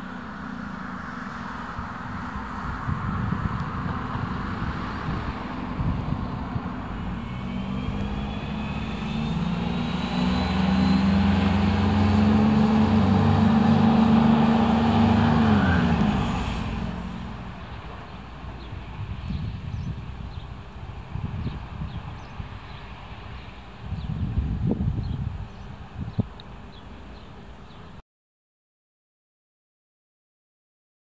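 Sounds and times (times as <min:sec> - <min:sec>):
faint rising whine: 0:00.0 - 0:18.5
diesel railcar engine: 0:00.0 - 0:28.0.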